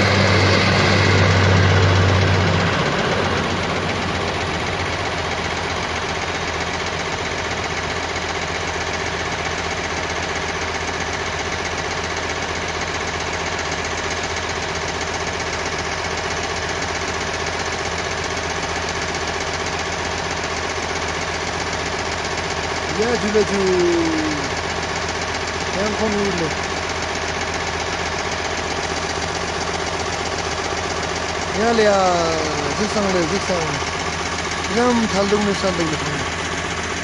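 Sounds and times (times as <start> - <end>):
turboprop engines droning: 0.0 - 37.0.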